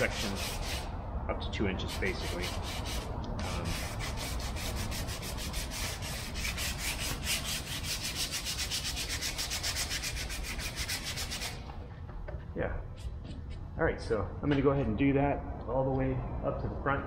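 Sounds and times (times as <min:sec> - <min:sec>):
hand sanding wood: 0:00.0 - 0:00.9, 0:01.8 - 0:11.7.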